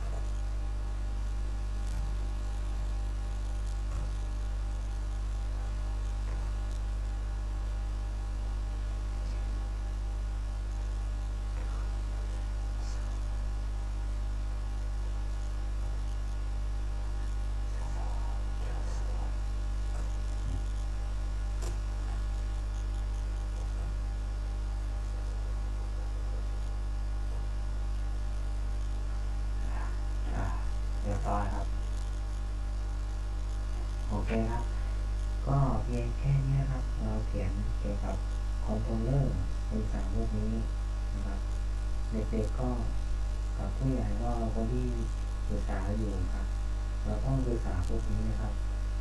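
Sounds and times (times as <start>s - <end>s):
electrical mains hum: 0.0s - 49.0s.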